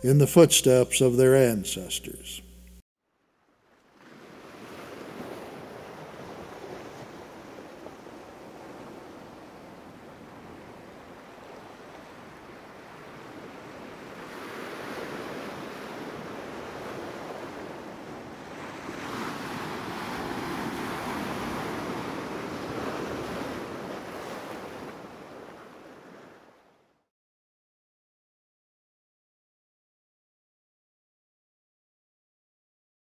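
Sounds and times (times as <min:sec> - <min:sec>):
wind: 0:03.0 - 0:27.0
ocean surf washing in: 0:04.0 - 0:26.5.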